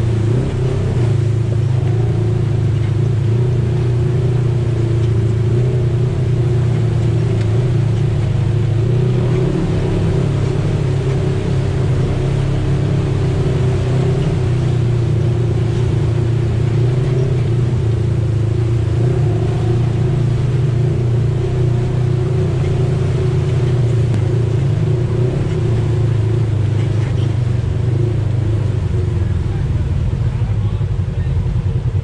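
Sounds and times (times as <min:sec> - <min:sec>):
vehicle engine droning: 0:00.0 - 0:32.0.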